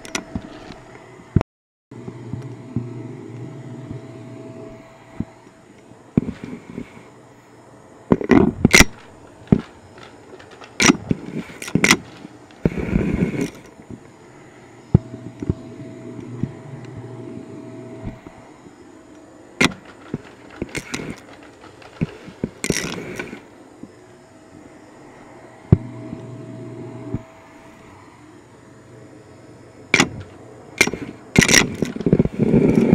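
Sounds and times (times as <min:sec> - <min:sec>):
vacuum wand knocking and scraping: 0:08.1 - 0:14.0, 0:19.6 - 0:24.0.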